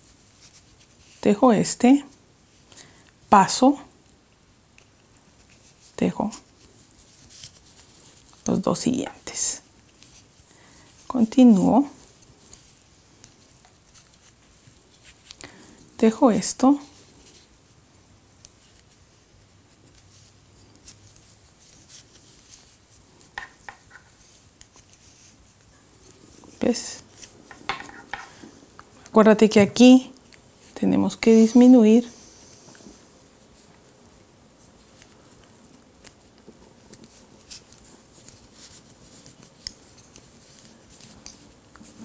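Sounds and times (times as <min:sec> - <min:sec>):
knitting needles clicking: 0:35.0 - 0:41.9.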